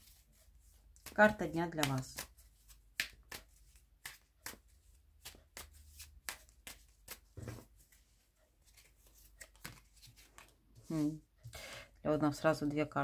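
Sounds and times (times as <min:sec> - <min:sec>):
playing cards shuffling: 0:00.0 - 0:11.1.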